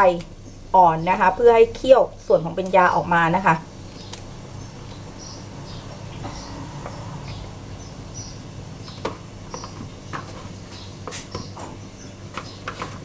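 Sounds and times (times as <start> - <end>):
low steady hum: 0.0 - 13.0
leaves snapping and rustling: 3.8 - 4.6.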